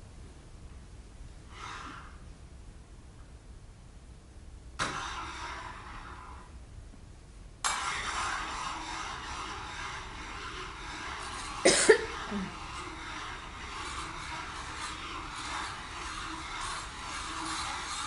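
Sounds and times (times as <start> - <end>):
cough-like burst: 11.6 - 12.5.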